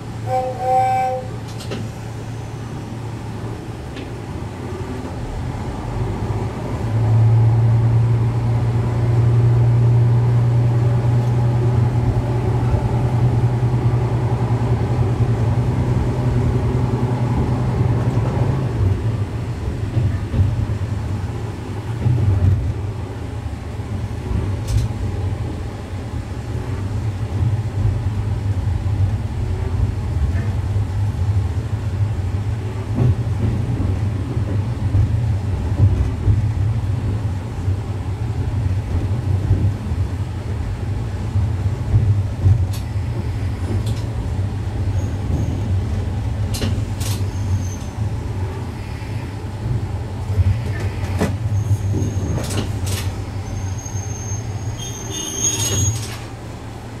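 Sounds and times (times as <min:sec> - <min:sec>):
diesel railcar engine rumble: 0:00.0 - 0:57.0
wheels clicking over rail joints: 0:46.4 - 0:48.0
high wheel squeal: 0:47.2 - 0:48.0, 0:53.4 - 0:56.2.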